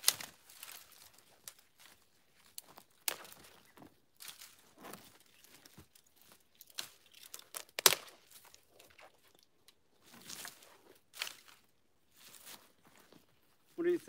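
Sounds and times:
boots crunching in snow: 0.0s - 6.4s, 10.0s - 14.0s
dry twigs snapping and crackling: 0.0s - 12.9s.

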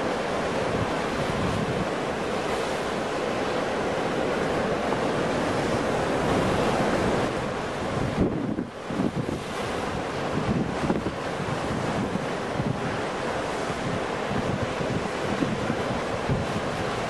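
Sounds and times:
ocean waves breaking: 0.0s - 17.0s.

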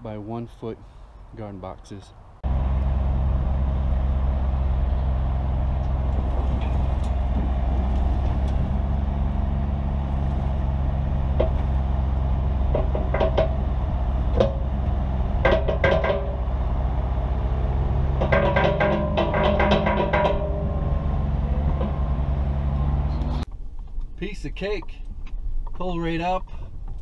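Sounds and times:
diesel engine running: 2.4s - 23.5s
metal clanks and knocks: 5.7s - 9.3s, 10.0s - 16.6s, 18.0s - 22.3s.

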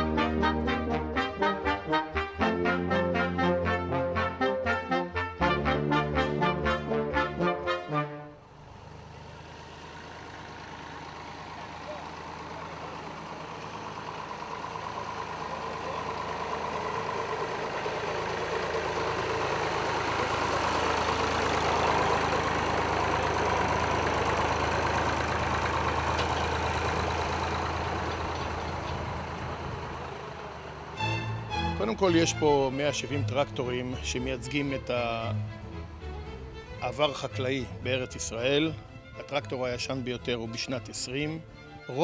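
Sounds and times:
old tractor engine running: 8.5s - 42.0s.

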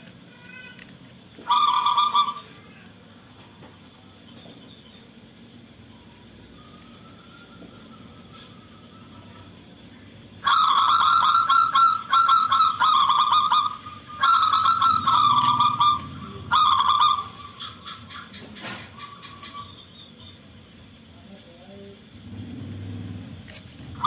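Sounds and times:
dove singing trilled coos: 1.4s - 2.6s, 6.3s - 20.7s.

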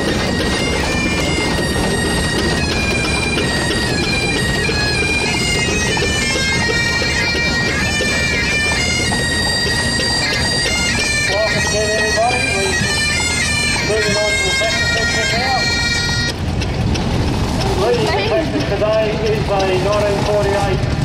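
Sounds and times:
bagpipe chanter melody: 0.0s - 16.4s
bagpipe drones: 0.0s - 21.0s.

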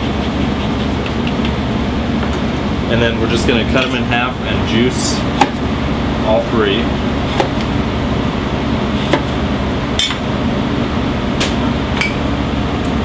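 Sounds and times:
kitchen ventilation hum: 0.0s - 13.0s.

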